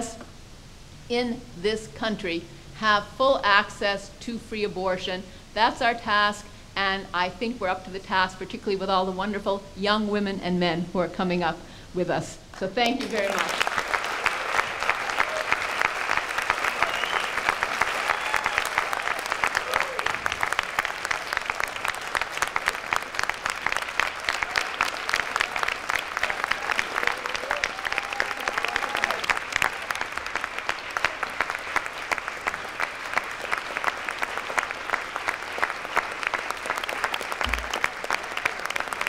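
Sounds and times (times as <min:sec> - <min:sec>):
crowd clapping: 0:12.8 - 0:39.0.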